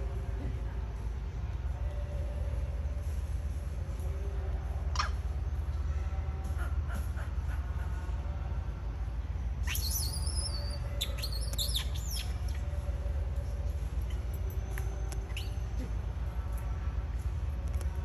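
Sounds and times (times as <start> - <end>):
steady low rumble: 0.0 - 18.0
high-pitched chirping animal calls: 9.6 - 12.6.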